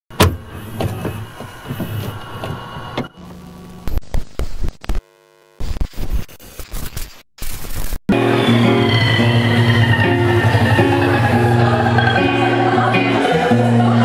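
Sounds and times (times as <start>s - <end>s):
vhs tape static crackle: 3.2s - 8.0s.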